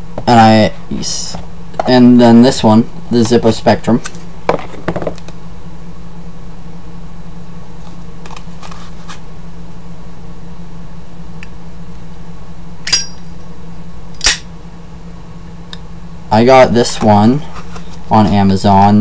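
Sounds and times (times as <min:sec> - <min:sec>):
steady low hum: 0:00.0 - 0:19.0
lighter lid metallic clicks: 0:14.2 - 0:14.4.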